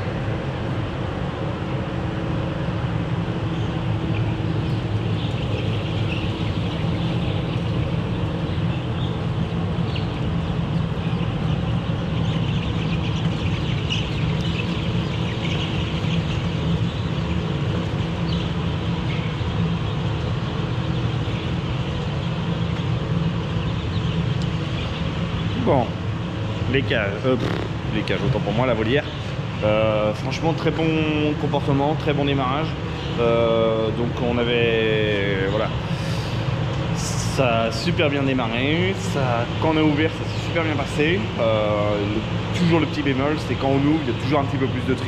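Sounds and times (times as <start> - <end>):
ventilation hum: 0.0 - 45.0
chicks peeping: 4.1 - 25.9.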